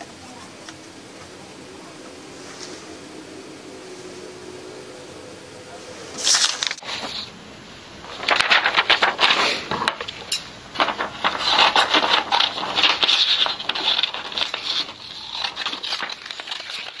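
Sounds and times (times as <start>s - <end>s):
paper rustling on wooden table: 6.2s - 17.0s.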